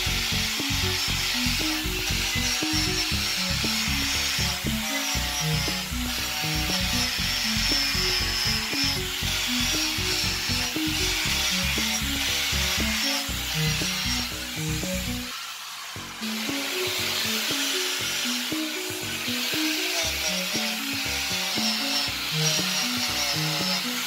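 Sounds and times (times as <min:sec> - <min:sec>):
background music with bass line: 0:00.0 - 0:15.3, 0:16.0 - 0:24.0
angle grinder polishing metal: 0:00.0 - 0:24.0.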